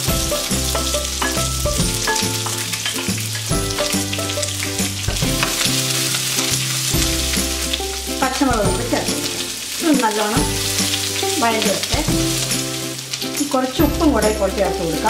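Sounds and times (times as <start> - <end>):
background music: 0.0 - 15.0
onions sizzling in fat: 0.0 - 15.0.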